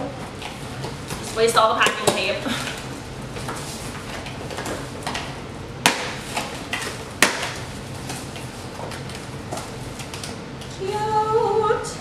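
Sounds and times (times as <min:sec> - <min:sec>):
sharp cardboard snaps: 0:05.8 - 0:07.6.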